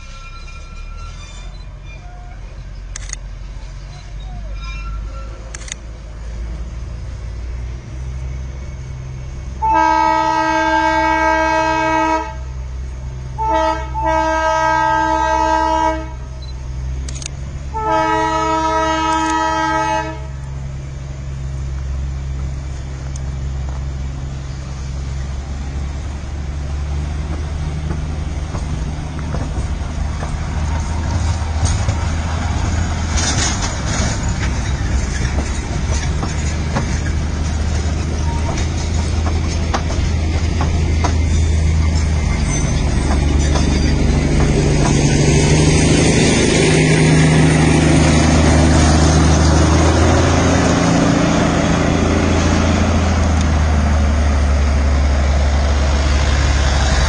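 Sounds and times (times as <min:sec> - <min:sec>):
train rumbling: 0:00.0 - 0:57.0
train horn blasts: 0:09.6 - 0:12.6, 0:13.4 - 0:16.4, 0:17.7 - 0:20.4.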